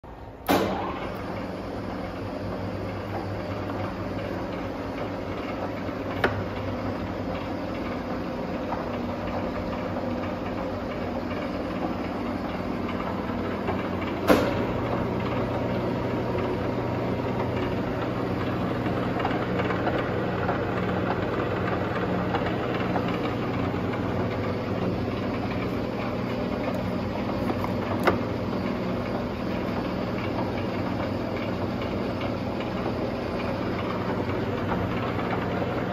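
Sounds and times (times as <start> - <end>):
lathe running hum: 0.1 - 35.9
sharp mechanical clunk: 0.4 - 1.1, 14.2 - 14.8.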